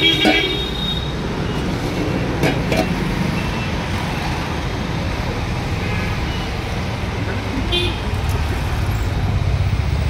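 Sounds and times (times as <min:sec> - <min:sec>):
city road traffic: 0:00.0 - 0:10.0
steel lid clinking: 0:00.1 - 0:00.6, 0:02.4 - 0:03.0.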